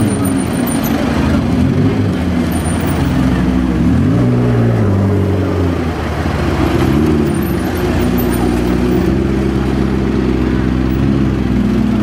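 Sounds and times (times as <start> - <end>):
car engine revving: 0.0 - 12.0
city traffic noise: 0.0 - 12.0.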